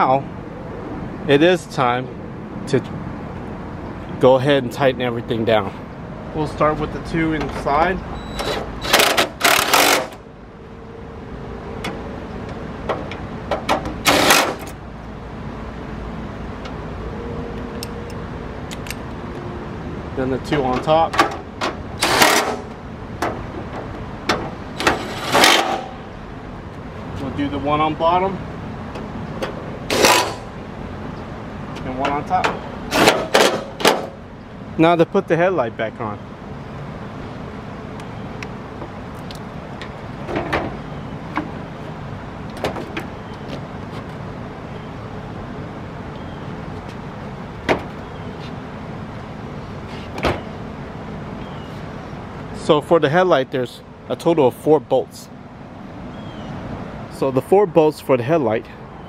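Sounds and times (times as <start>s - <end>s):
steady background noise: 0.0s - 59.0s.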